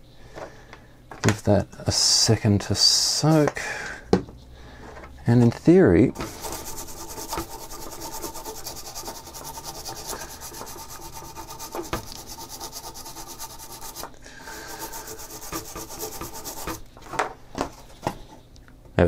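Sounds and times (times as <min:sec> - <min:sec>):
toothbrush scrubbing circuit board: 0:06.2 - 0:16.8.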